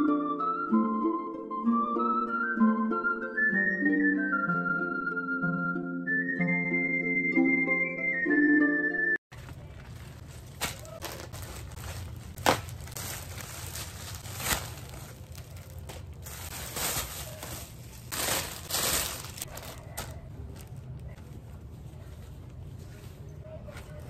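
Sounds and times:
plastic packaging crinkling: 0:09.3 - 0:21.4.

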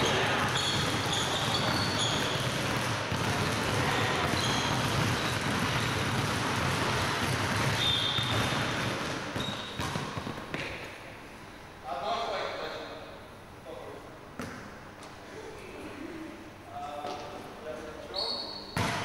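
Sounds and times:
sneaker squeaks: 0:00.0 - 0:06.3, 0:07.2 - 0:10.9, 0:18.1 - 0:19.0
basketballs bouncing on wooden floor: 0:00.0 - 0:10.9, 0:18.8 - 0:19.0.

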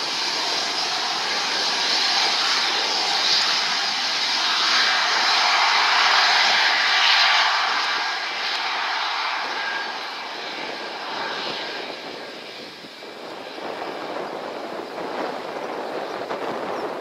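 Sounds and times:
jet engine rushing: 0:00.0 - 0:17.0.

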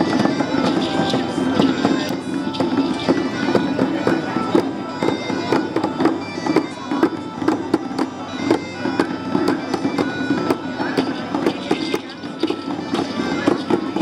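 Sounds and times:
frame drums beating: 0:00.0 - 0:14.0.

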